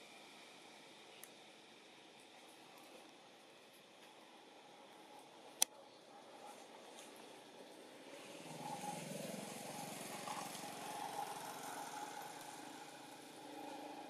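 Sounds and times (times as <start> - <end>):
faint vehicle engine hum: 0.0 - 14.0.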